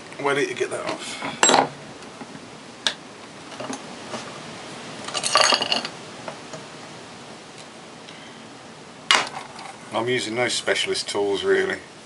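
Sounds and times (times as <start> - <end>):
metal knocks and clinks: 5.1 - 5.9.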